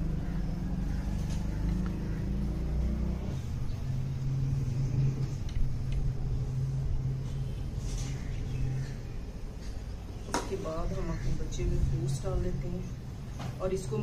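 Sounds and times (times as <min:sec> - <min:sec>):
machine humming and rumbling: 0:00.0 - 0:14.0.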